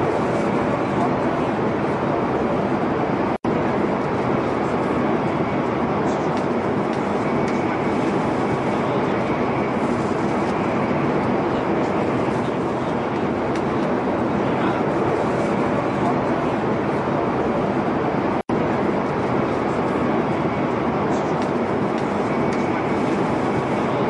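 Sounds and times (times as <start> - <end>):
metro train rushing rumble: 0.0 - 24.0.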